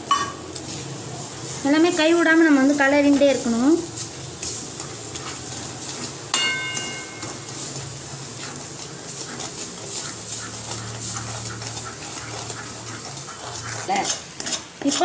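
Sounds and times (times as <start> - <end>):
spoon scraping a metal pan: 4.4 - 15.0
metallic clink: 6.3 - 7.4.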